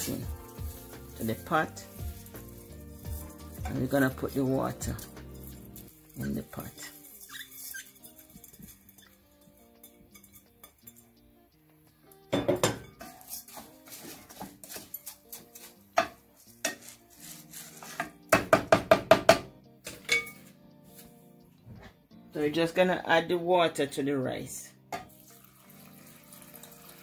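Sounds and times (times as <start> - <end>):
wooden spoon scraping in saucepan: 0.0 - 10.5, 13.0 - 18.2
soft background music: 0.0 - 27.0.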